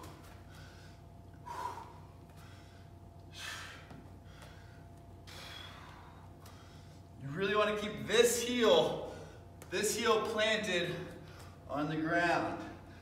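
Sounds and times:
faint steady hum: 0.0s - 13.0s
man breathing hard: 0.1s - 7.2s.

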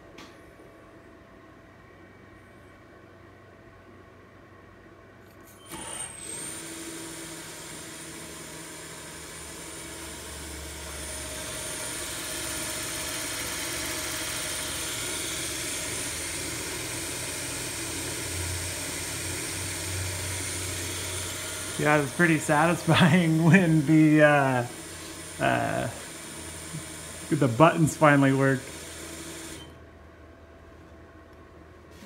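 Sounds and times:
mill spindle whine: 5.3s - 29.9s.

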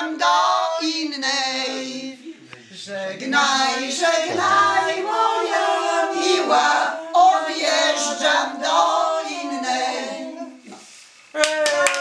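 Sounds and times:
women singing unaccompanied: 2.8s - 10.7s.

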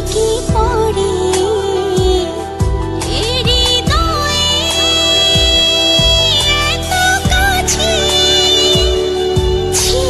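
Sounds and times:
romantic song with beat: 0.0s - 10.0s
deep bass drum hits: 2.0s - 4.4s, 5.4s - 7.9s.

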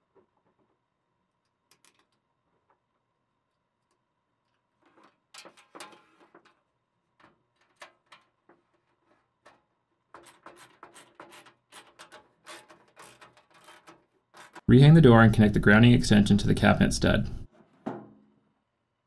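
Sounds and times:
small metal parts clicking: 1.4s - 2.2s.

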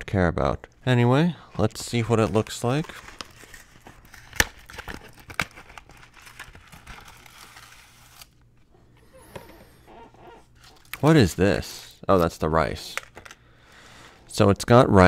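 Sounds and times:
cardboard box tearing and crinkling: 2.2s - 8.4s.

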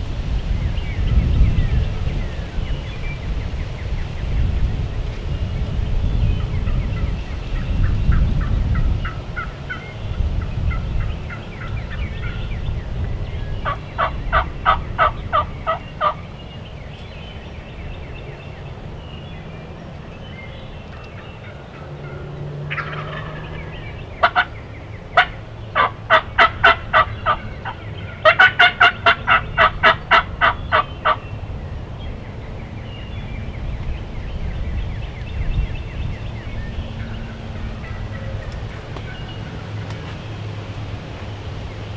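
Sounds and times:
low steady rumble: 0.0s - 41.9s
wild turkey yelping: 13.6s - 16.2s, 21.0s - 31.3s.

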